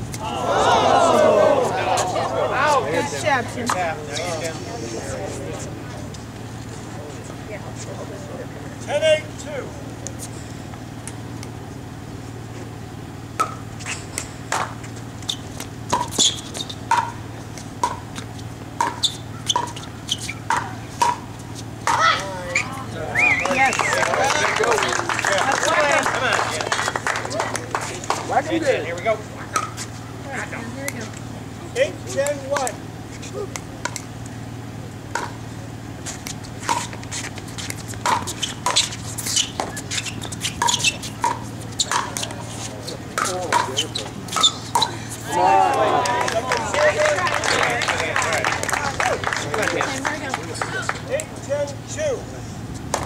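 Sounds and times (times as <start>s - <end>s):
paddles hitting plastic ball: 36.2s - 42.4s, 43.1s - 44.9s.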